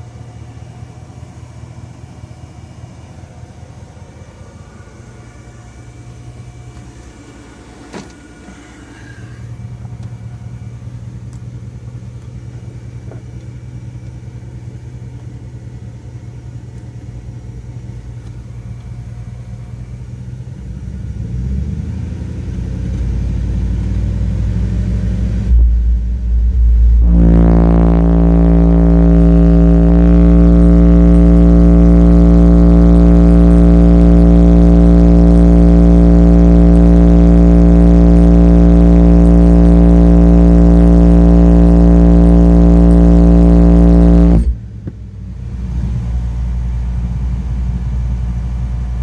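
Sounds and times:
subwoofer bass test tone: 0.0 - 21.2, 23.5 - 49.0
low rumble: 2.6 - 12.2, 24.5 - 45.2.

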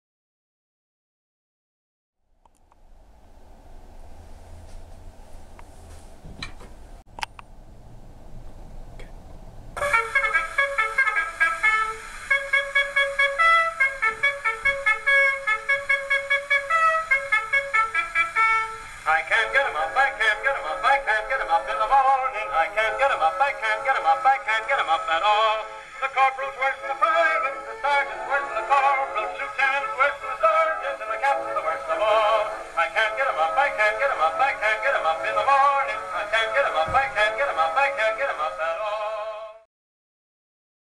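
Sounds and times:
trumpet on old record: 9.8 - 39.6.

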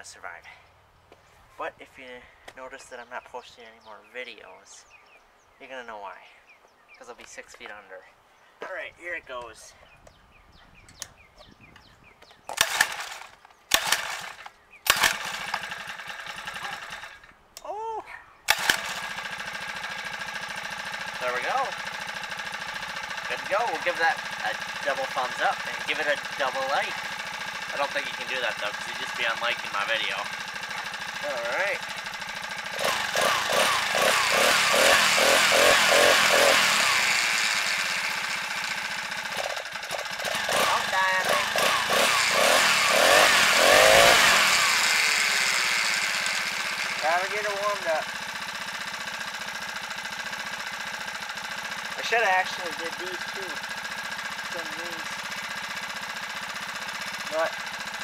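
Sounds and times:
small engine starting and running: 12.4 - 17.4, 18.5 - 58.0.

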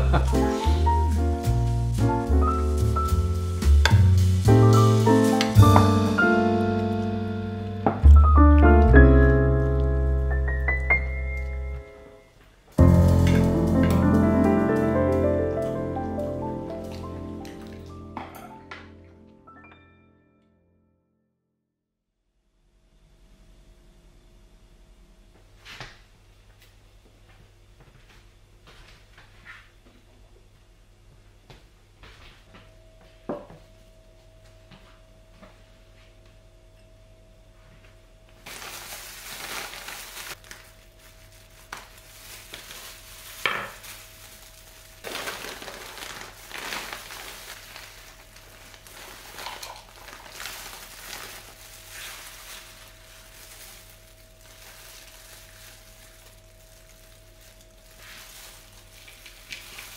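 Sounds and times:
potting soil scraping and rustling: 42.3 - 56.4, 57.6 - 59.9.

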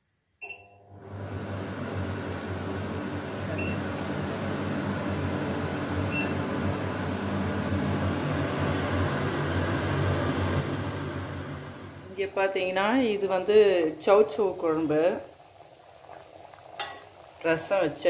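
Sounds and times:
extractor fan whooshing: 1.0 - 12.1.

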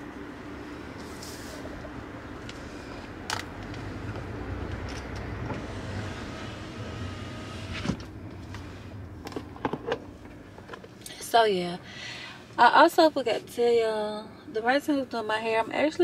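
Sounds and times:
car engine and road rumble: 0.0 - 16.0
power window whirring: 3.6 - 8.2.

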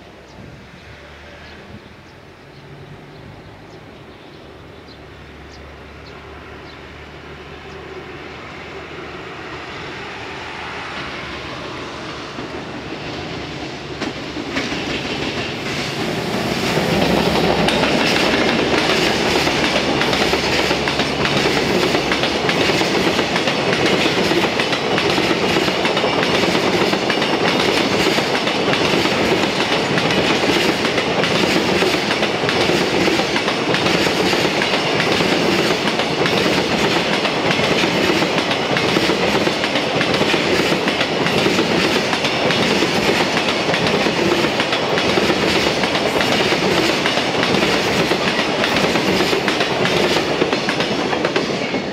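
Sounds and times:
electric locomotive passing: 0.0 - 51.9
wheels clacking over rail joints: 12.3 - 51.8.

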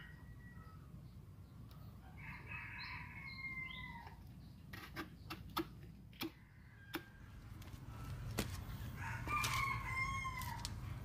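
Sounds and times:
rooster crowing: 2.1 - 4.2, 6.4 - 10.9.

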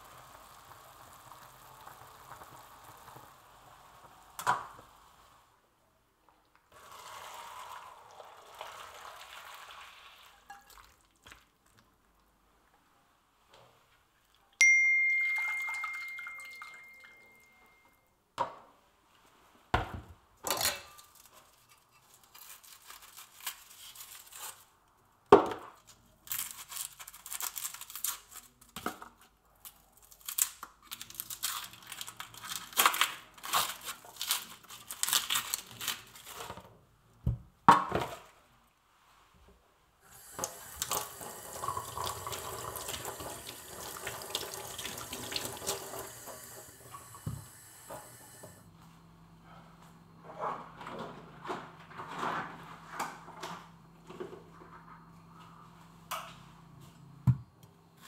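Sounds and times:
ringing clink: 14.6 - 18.0
kitchen knocks and clatters: 19.8 - 22.0
kitchen tap running: 40.0 - 48.5.

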